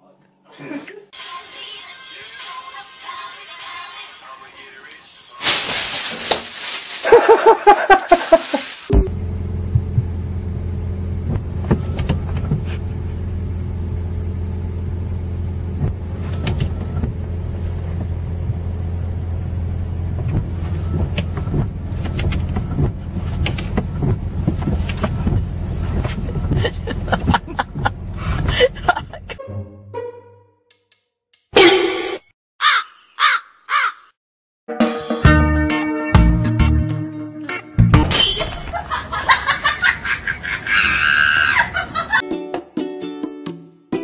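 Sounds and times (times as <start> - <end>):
vehicle engine humming: 5.4 - 30.2.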